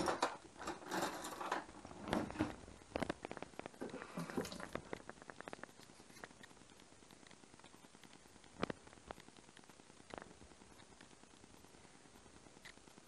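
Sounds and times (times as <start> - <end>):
cutlery rattling in a drawer: 0.0 - 1.7.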